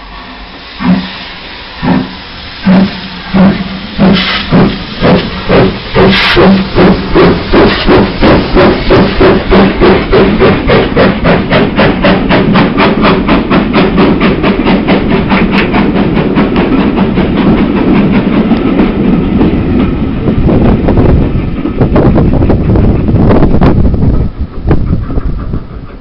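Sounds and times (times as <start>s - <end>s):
steam engine exhaust chuffs: 0.6s - 18.6s.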